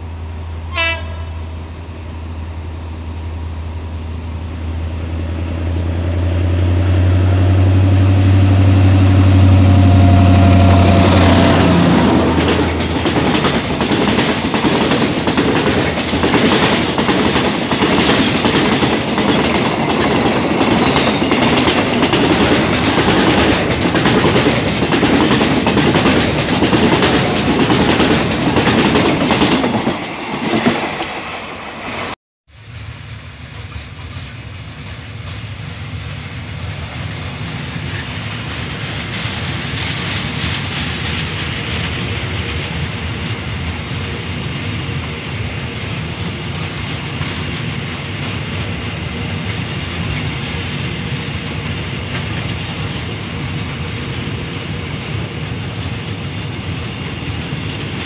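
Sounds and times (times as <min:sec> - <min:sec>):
diesel locomotive engine drone: 0:00.0 - 0:58.0
wheels clicking over rail joints: 0:10.8 - 0:31.2, 0:33.4 - 0:58.0.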